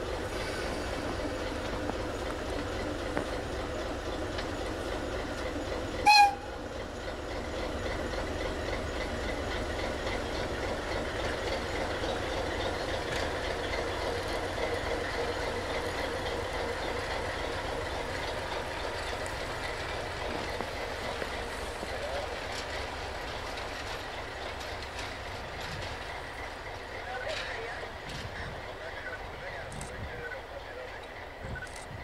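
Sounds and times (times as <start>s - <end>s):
diesel locomotive running: 0.0s - 32.0s
locomotive horn toot: 6.0s - 6.6s.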